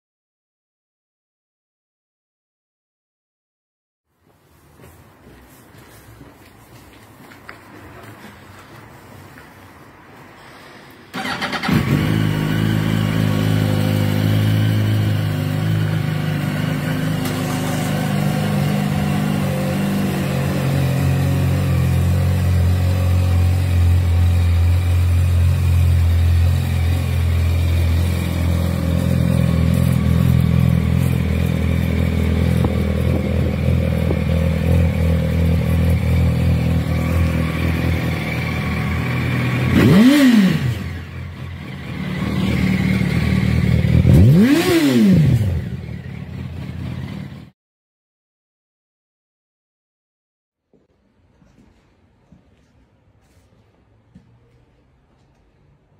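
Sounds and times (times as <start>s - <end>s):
motorcycle engine starting and idling: 11.1s - 47.5s.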